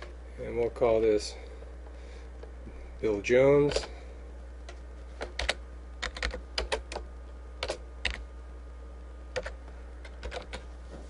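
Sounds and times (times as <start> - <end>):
faint low hum: 0.0 - 11.0
keyboard typing clicks: 4.7 - 8.2, 9.3 - 10.6.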